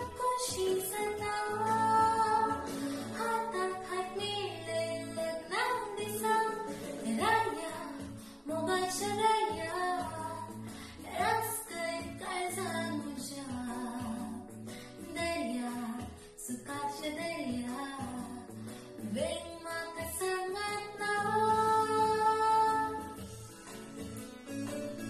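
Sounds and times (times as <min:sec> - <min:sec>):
woman singing: 0:00.0 - 0:23.4
instrumental accompaniment: 0:21.4 - 0:25.0.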